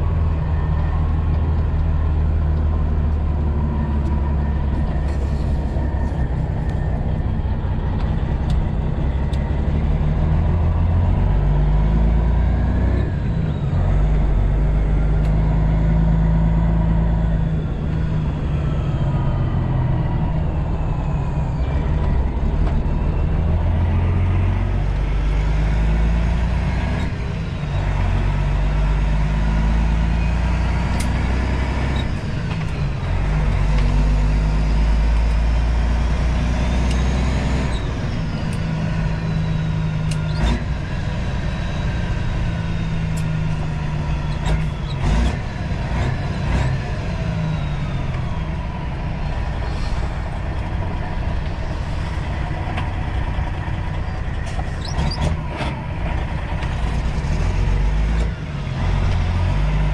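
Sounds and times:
truck diesel engine shifting gears: 0:00.0 - 0:59.9.

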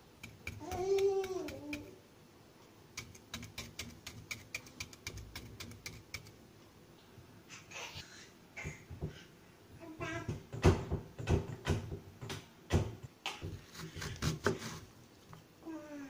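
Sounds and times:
fork tines clicking on plate: 0:03.0 - 0:06.3.

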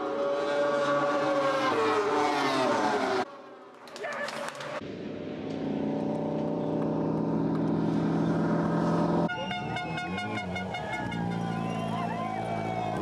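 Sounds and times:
crowd noise: 0:09.3 - 0:13.0.

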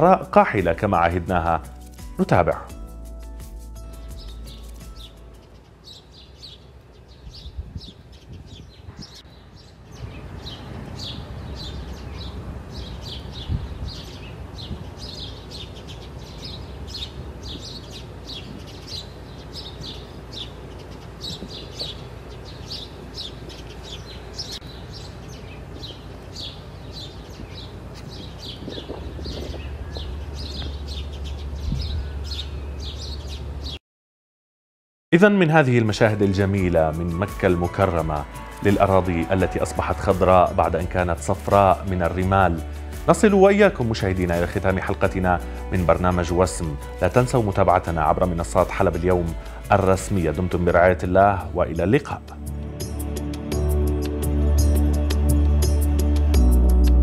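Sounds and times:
small birds chirping: 0:00.0 - 0:33.8, 0:35.8 - 0:52.4
wind rumble on microphone: 0:07.1 - 0:15.2, 0:27.2 - 0:32.5.

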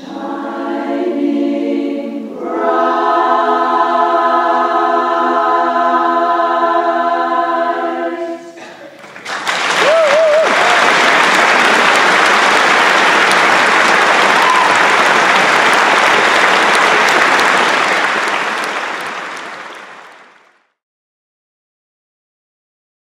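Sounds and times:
audience applause: 0:08.9 - 0:20.7.

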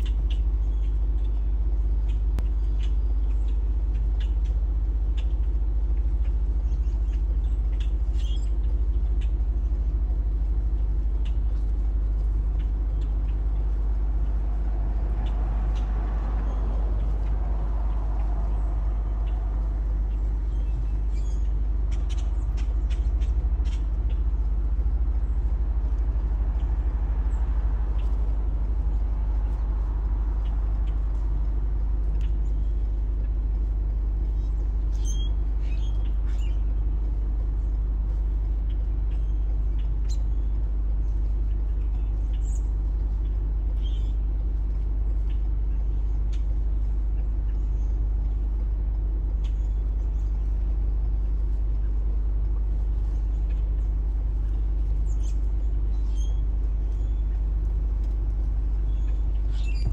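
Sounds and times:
traffic rumble: 0:00.0 - 0:59.9
faint bird calls: 0:11.1 - 0:24.6, 0:58.7 - 0:59.9.

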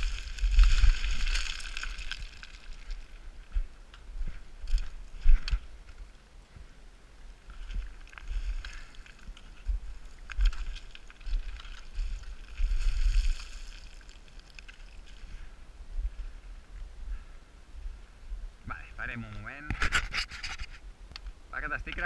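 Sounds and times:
wind buffeting microphone: 0:00.0 - 0:06.0
stones crunching underfoot: 0:00.0 - 0:06.1, 0:07.4 - 0:15.5.

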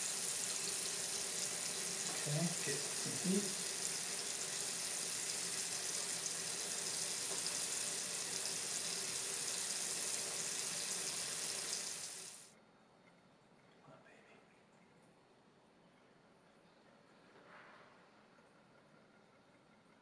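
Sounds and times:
tap water splashing into sink: 0:07.0 - 0:08.5.

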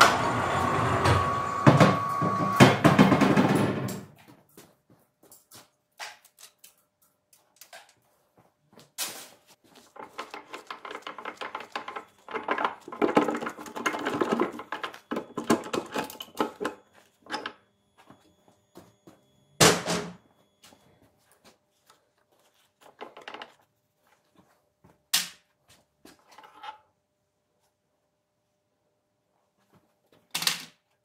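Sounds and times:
metal parts clinking and clanking: 0:09.9 - 0:17.6.

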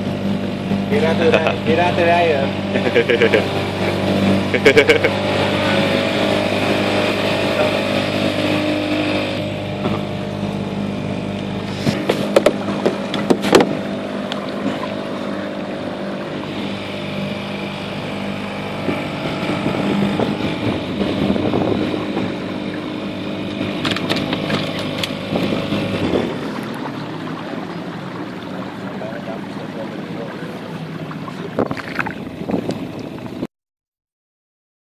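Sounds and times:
motorboat engine humming: 0:00.0 - 0:33.5
sharp knocks and clatters: 0:11.9 - 0:13.8.

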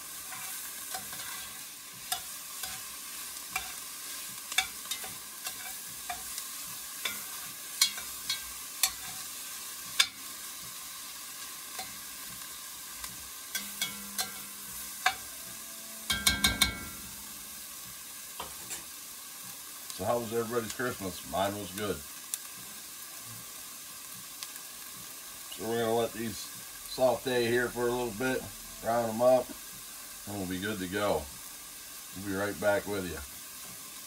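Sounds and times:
vegetables sizzling in butter: 0:00.0 - 0:34.0
metal spoon scraping a pot: 0:00.2 - 0:02.9, 0:03.5 - 0:03.8, 0:04.5 - 0:06.4, 0:07.0 - 0:09.3.

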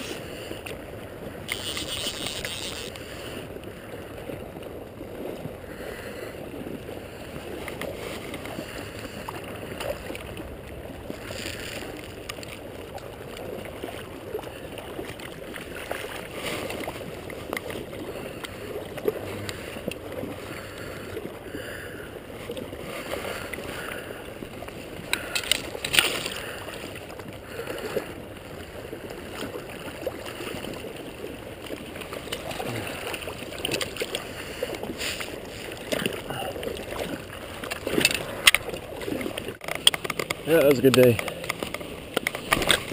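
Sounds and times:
river water lapping and gurgling: 0:00.0 - 0:42.9
water splash: 0:24.6 - 0:28.1, 0:29.3 - 0:42.9.

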